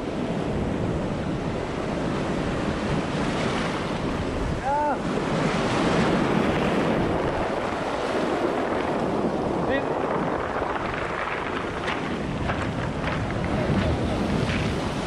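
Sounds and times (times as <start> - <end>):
wind on microphone: 0.0 - 15.0
surf breaking over pebbles: 6.0 - 15.0.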